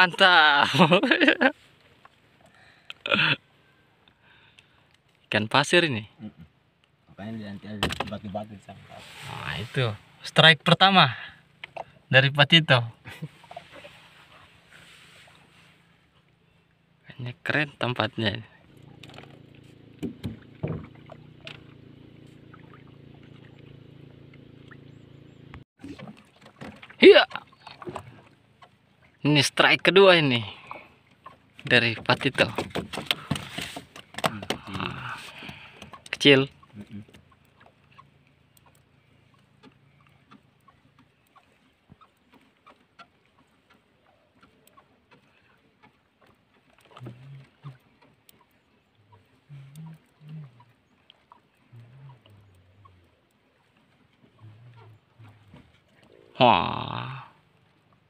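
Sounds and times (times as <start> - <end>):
boat engine running: 12.8 - 58.0.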